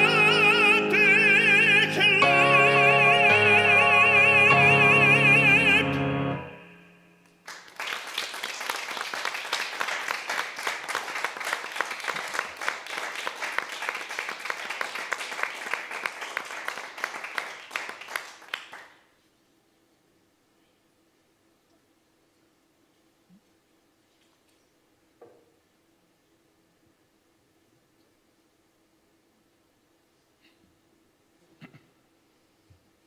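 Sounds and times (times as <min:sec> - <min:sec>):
male opera singer: 0:00.0 - 0:06.8
grand piano: 0:00.0 - 0:07.3
applause: 0:07.4 - 0:19.1.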